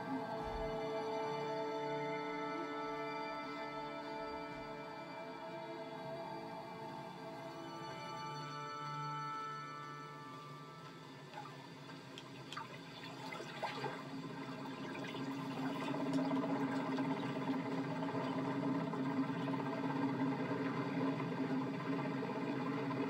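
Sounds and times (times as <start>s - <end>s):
rushing water through tv speakers: 11.3s - 23.0s.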